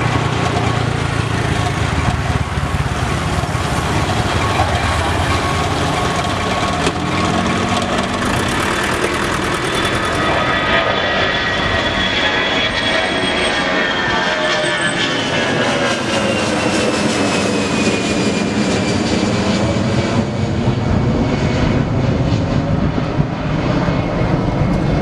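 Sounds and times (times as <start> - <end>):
high jet whine: 0.0 - 25.0
jet engines roaring at takeoff: 0.0 - 25.0.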